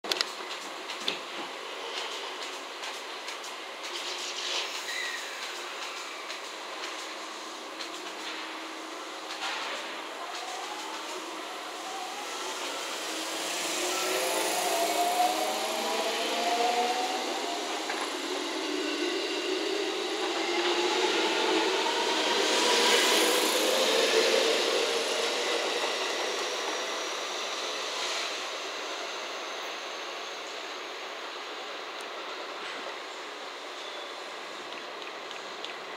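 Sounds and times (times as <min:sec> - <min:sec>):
electric train motor whine: 0:09.9 - 0:27.0.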